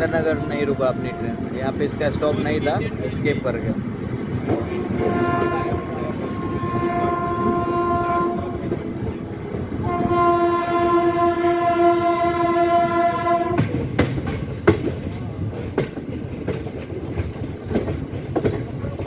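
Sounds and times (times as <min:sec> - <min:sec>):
train horn blasts: 0:00.0 - 0:01.6, 0:04.6 - 0:08.8, 0:09.8 - 0:13.7
moving train running noise: 0:00.0 - 0:19.0.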